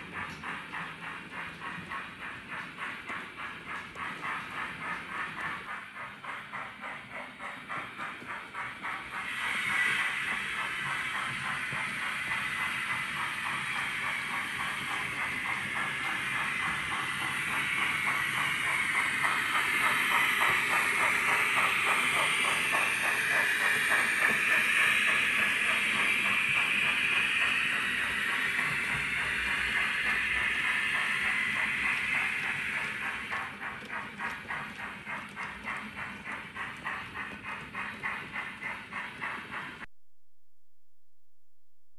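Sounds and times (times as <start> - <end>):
model steam chuffs from speaker: 0.0 - 39.9
model train wheels clattering: 0.0 - 39.9.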